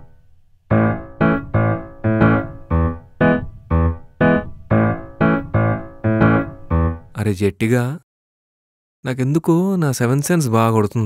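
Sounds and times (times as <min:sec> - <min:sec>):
keyboard playing struck notes: 0:00.7 - 0:07.2.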